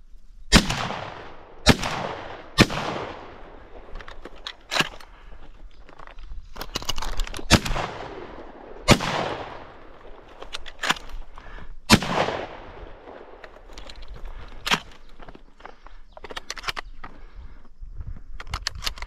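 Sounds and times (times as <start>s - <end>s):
shotgun shots with echo: 0.5s - 3.8s, 7.5s - 10.2s, 11.9s - 13.4s
faint shots: 0.5s - 4.0s, 7.5s - 10.3s, 11.9s - 13.5s.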